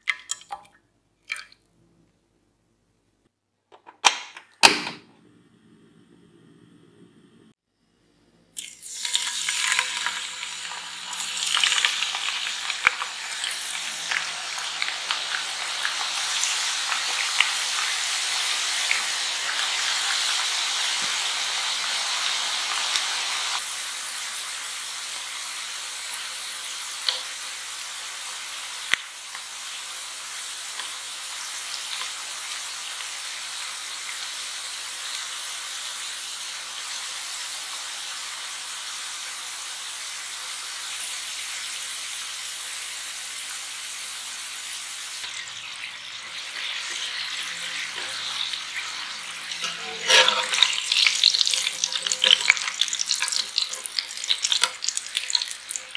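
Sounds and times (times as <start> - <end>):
potato slices deep-frying in oil: 8.6 - 55.9.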